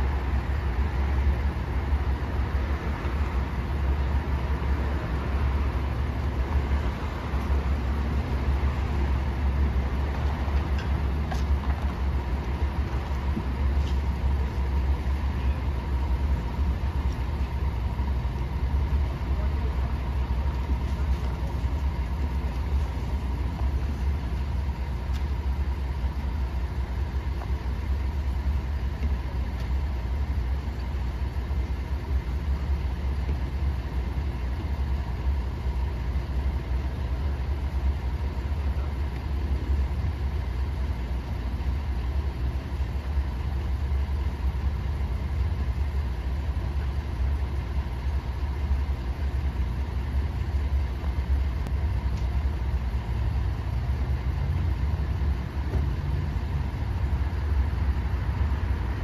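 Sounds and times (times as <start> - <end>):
truck engines idling: 0.0 - 59.0.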